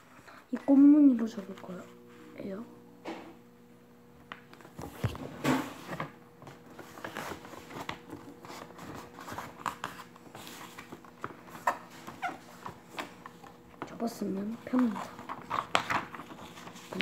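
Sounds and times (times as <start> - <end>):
paper rustling and crinkling: 4.6 - 17.0.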